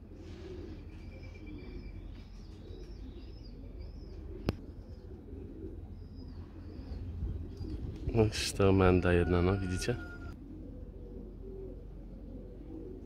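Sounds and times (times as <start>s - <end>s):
pigeons cooing: 0.0s - 13.0s
small birds chirping: 0.3s - 9.0s.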